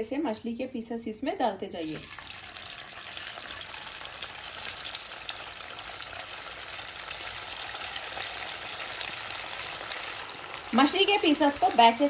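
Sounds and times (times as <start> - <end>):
fish sizzling in hot oil: 1.8 - 12.0.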